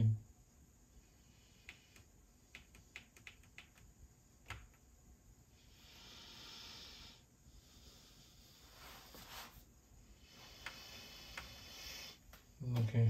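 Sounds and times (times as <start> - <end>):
soft hisses: 5.5 - 13.0.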